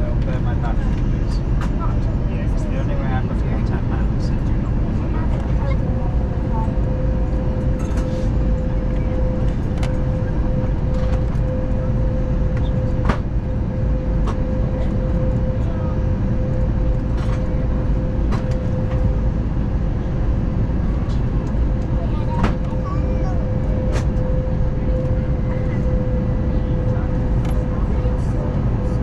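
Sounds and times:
airflow rush and engine drone: 0.0s - 29.0s.

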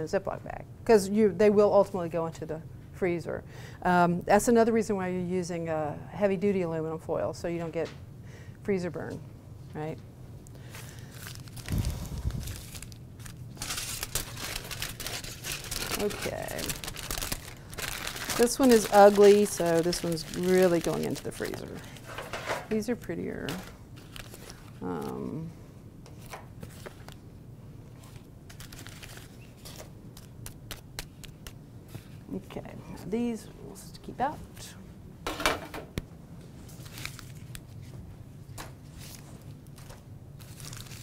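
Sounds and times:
low steady hum: 0.0s - 41.0s
aluminum foil crinkling: 10.6s - 25.4s, 28.0s - 32.2s, 36.6s - 37.9s, 38.9s - 41.0s.

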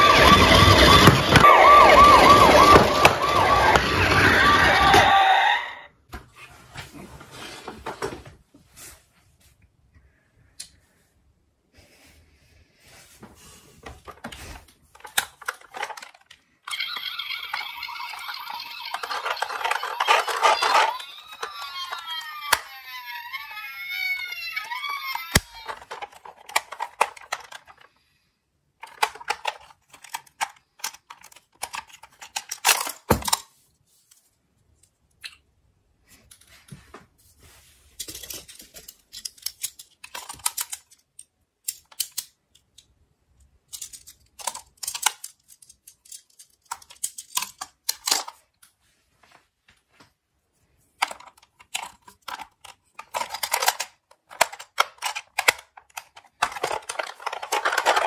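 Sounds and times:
plastic toy clicking and rattling: 0.0s - 5.2s, 14.9s - 27.9s, 28.8s - 33.5s, 38.0s - 48.4s, 51.0s - 58.0s.

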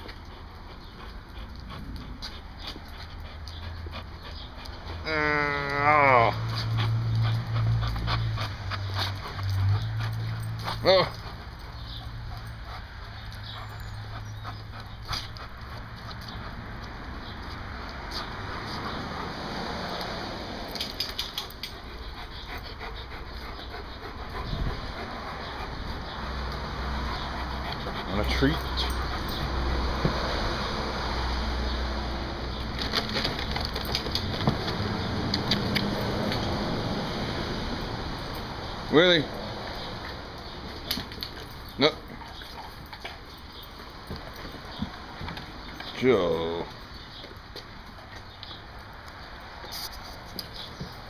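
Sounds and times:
dog panting: 0.0s - 5.1s, 5.7s - 36.9s, 38.2s - 46.0s
dog whining: 4.9s - 6.8s.

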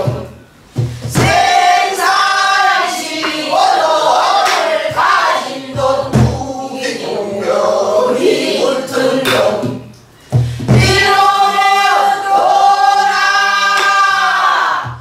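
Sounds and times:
barrel drum strokes: 0.0s - 2.6s.

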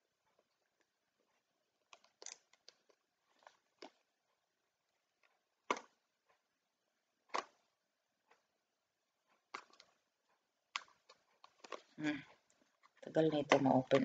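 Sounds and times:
plastic case clicking and rattling: 1.9s - 4.0s, 5.6s - 6.0s, 9.5s - 10.0s, 10.7s - 12.0s, 12.8s - 14.0s.

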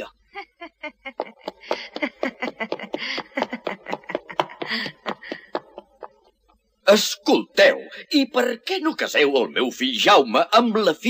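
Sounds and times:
child giggling: 0.4s - 6.3s
child's running footsteps: 0.9s - 6.3s.

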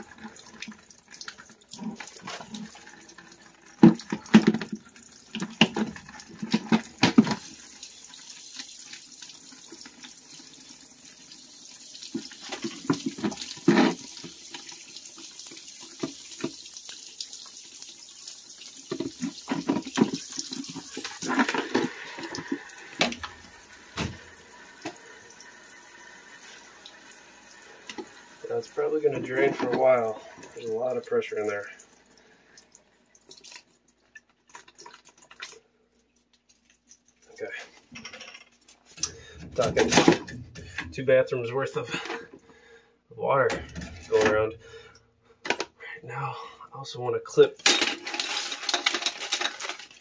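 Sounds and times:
water splashing into plastic bucket: 0.0s - 10.5s, 11.9s - 17.9s, 18.5s - 25.0s, 33.2s - 35.7s
knocks and clunks: 23.0s - 24.3s, 39.0s - 41.0s, 43.4s - 44.6s.

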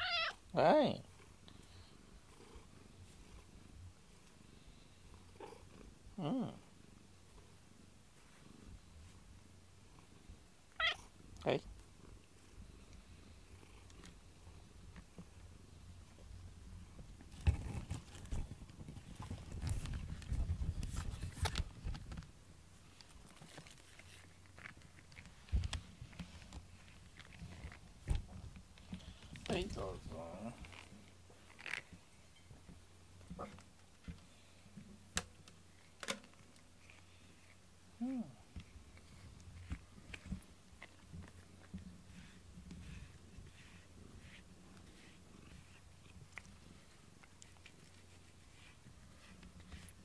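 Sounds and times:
cat meowing: 0.0s - 0.4s, 10.7s - 11.1s
cat purring: 1.0s - 7.6s, 36.8s - 50.0s.

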